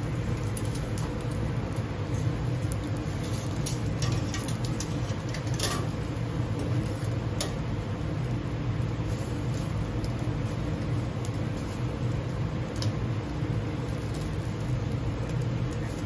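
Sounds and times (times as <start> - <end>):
grill and ventilation hum: 0.0 - 16.0
skewers clicking on metal rails: 3.3 - 5.9.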